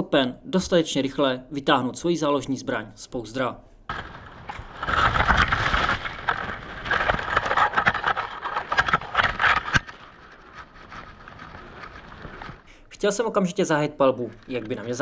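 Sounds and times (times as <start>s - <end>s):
clothing and gear rustling: 3.9s - 12.8s.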